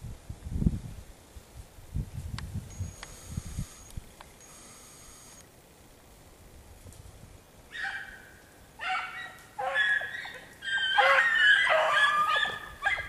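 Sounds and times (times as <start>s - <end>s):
hounds baying: 8.8s - 13.0s.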